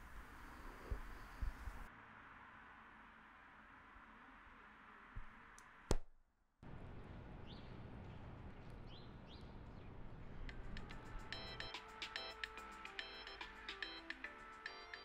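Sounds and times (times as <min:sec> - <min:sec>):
faint bird chirps: 0:00.0 - 0:01.9
daytime ambience: 0:00.0 - 0:05.9, 0:06.6 - 0:15.0.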